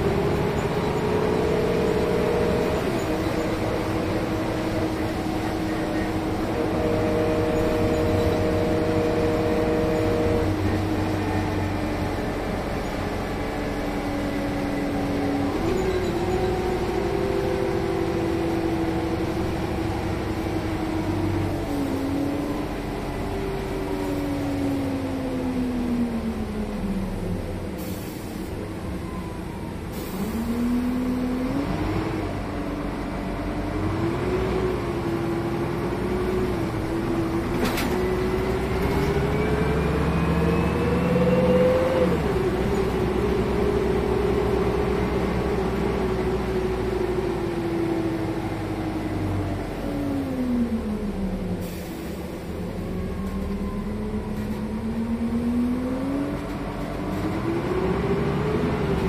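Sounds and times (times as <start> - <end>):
bus diesel engine accelerating: 0.0 - 59.0.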